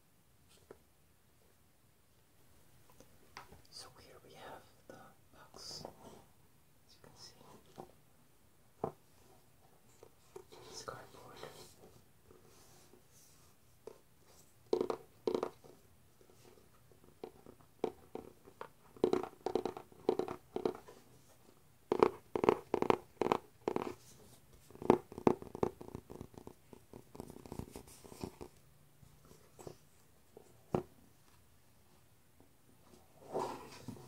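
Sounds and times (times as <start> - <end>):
fingernails tapping on cardboard: 19.0 - 20.8, 21.9 - 24.0.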